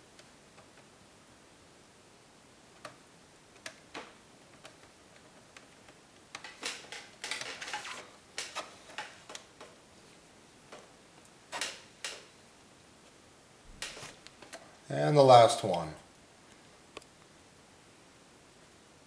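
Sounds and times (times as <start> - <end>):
screwdriver clicks and scrapes: 6.3 - 9.4.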